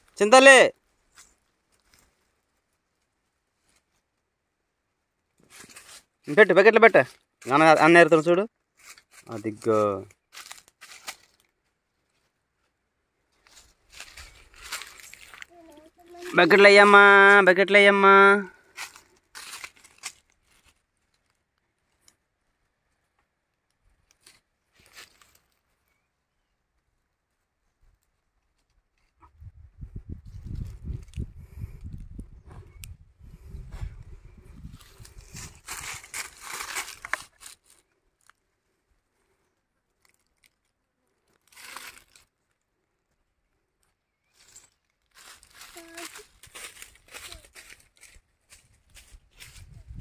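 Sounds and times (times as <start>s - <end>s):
footsteps on dry leaves: 5.4s - 6.3s, 8.6s - 12.4s, 13.3s - 17.5s, 18.5s - 21.4s, 24.2s - 25.7s, 34.5s - 38.4s, 41.3s - 42.4s, 44.3s - 50.0s.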